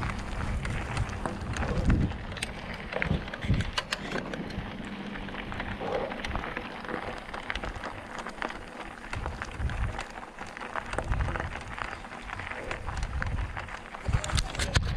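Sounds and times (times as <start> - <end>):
low thumps over bumps: 0.0 - 3.4
bike rattling and clicking: 0.0 - 14.9
tyres crunching over gravel: 0.0 - 14.9.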